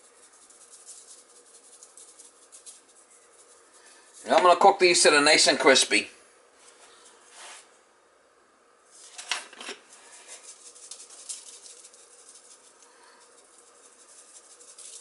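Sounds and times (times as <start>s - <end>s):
seasoning sprinkling rustle: 0.0s - 4.7s, 8.8s - 15.0s.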